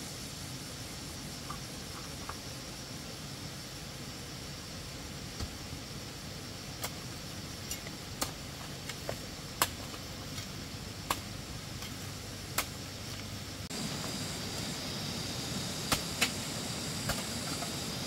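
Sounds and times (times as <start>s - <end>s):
steady background hiss: 0.0s - 18.0s
hoe chopping soil and stones: 15.8s - 17.8s.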